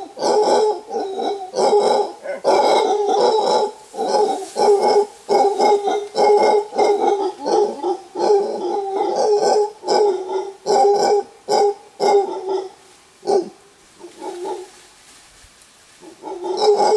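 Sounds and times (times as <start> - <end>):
howler monkey roaring: 0.0 - 9.4.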